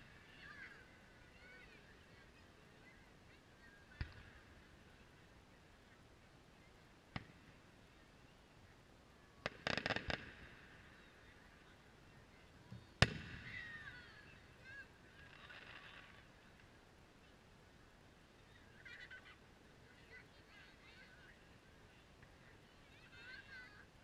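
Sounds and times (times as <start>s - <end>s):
firecracker cracks: 9.4s - 10.8s, 13.0s - 13.7s
distant firework pop: 13.0s - 13.5s
firework bang: 13.0s - 13.8s.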